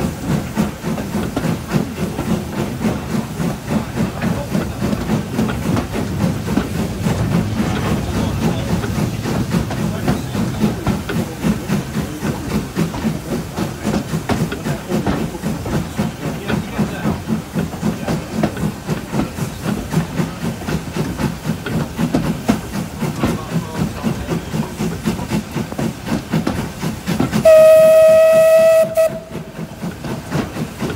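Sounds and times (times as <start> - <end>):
steam locomotive chuffing: 0.0 - 30.9
steam whistle: 27.4 - 29.5.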